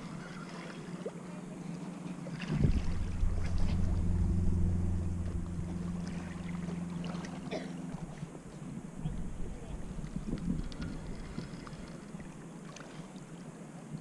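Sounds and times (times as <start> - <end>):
fishing line humming in wind: 2.3 - 13.4.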